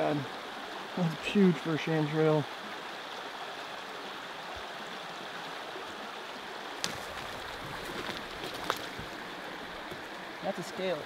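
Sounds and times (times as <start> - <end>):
creek running: 0.0 - 11.0
twig snapping: 6.8 - 9.1
boots rustling through undergrowth: 6.8 - 10.2.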